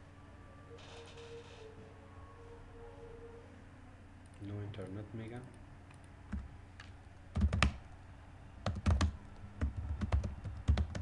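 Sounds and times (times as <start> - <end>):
typing on computer keyboard: 7.4 - 7.8, 8.6 - 11.0.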